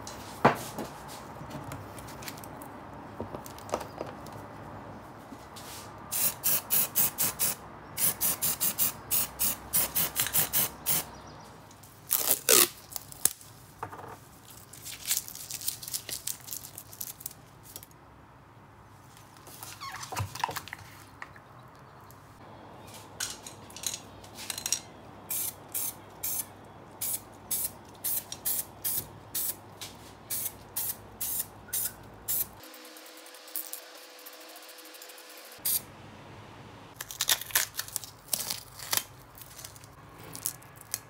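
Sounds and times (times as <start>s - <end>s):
masking tape ripping off roll: 12.1s - 13.4s
sharp rhythmic strokes: 30.4s - 35.8s
crinkly tape handling: 37.0s - 41.0s.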